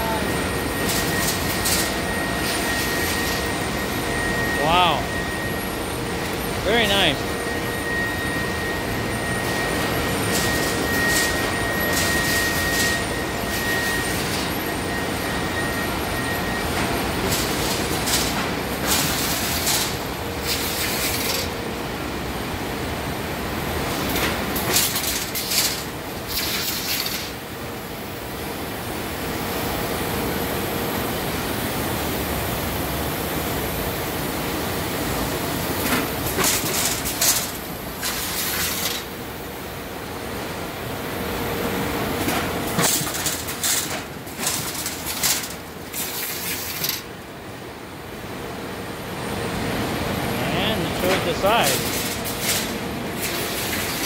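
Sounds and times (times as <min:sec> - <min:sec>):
faint high whine: 0:00.0 - 0:18.2
conveyors running: 0:00.0 - 0:54.0.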